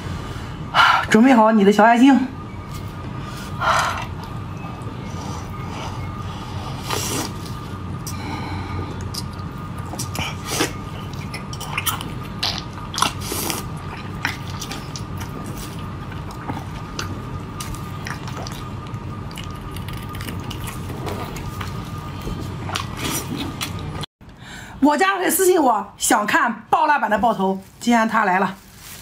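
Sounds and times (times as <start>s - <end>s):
steady background hum: 0.0s - 29.0s
wet chewing and slurping: 9.0s - 24.0s.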